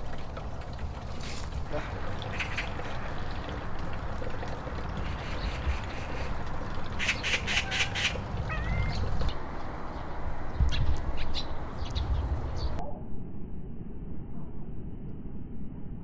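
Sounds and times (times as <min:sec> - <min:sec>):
low steady rumble: 0:00.0 - 0:16.0
magpie chattering: 0:07.0 - 0:09.2.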